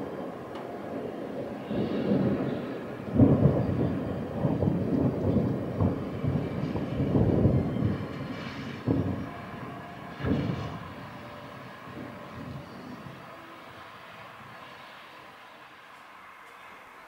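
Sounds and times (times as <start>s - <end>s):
rolling thunder: 0.0s - 13.4s.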